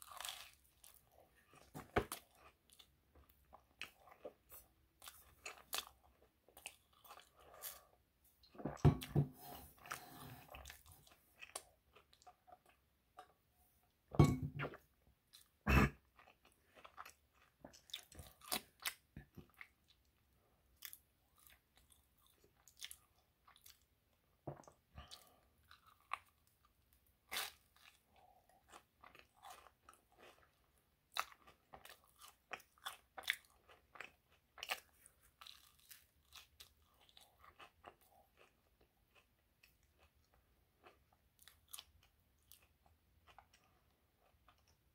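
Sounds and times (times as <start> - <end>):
chewing and biting: 27.3 - 44.8.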